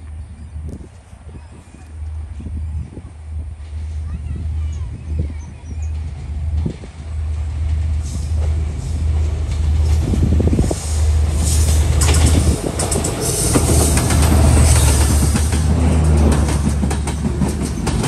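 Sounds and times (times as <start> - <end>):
diesel train passing: 0.0 - 18.0
train wheels clattering over rail joints: 5.6 - 18.0.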